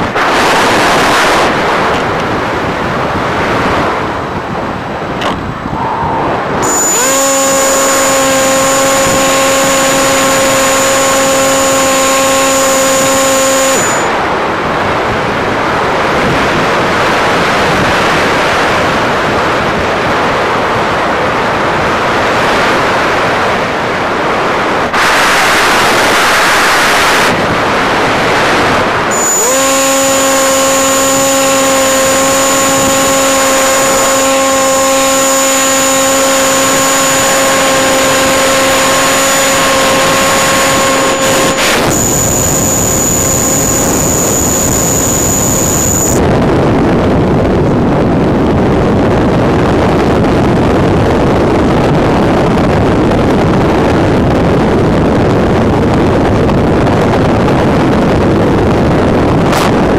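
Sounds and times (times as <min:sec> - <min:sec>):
model airplane motor whine: 0:05.2 - 0:14.2, 0:29.1 - 0:46.2
thin high steady tone: 0:05.7 - 0:14.2, 0:29.1 - 0:46.2.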